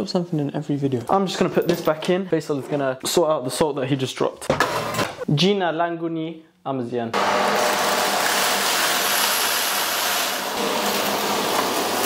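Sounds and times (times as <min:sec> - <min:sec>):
vacuum cleaner running: 0:07.2 - 0:12.0.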